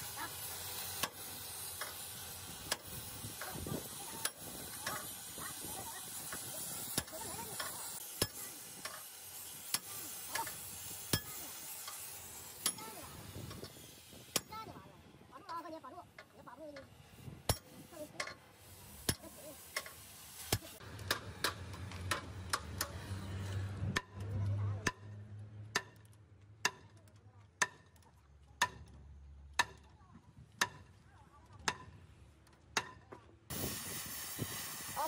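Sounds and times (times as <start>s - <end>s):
cutting torch hissing: 0.0s - 14.8s, 16.9s - 21.8s, 33.5s - 35.0s.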